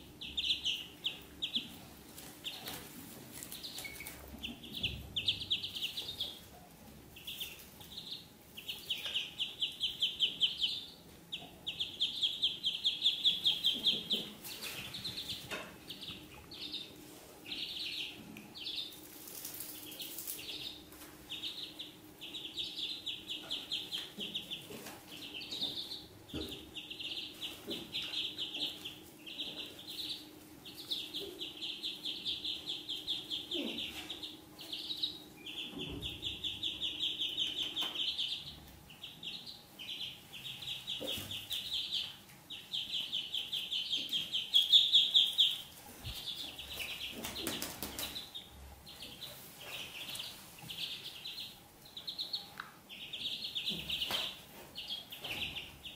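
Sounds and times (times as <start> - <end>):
ducklings peeping: 0.0 - 55.9.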